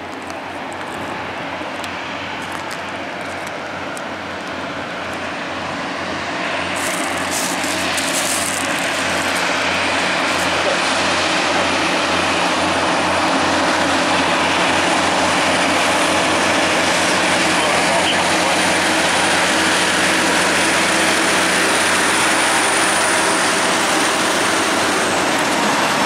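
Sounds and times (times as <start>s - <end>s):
truck diesel engines droning: 0.0s - 26.0s.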